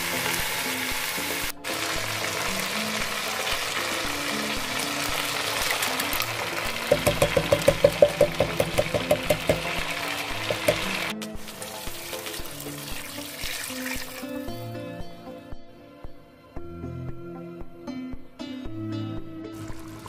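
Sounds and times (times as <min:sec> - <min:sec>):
meat sizzling in pot: 0:00.0 - 0:14.6, 0:19.6 - 0:20.0
soft background music: 0:00.0 - 0:20.0
water pouring: 0:01.6 - 0:14.5, 0:19.6 - 0:20.0.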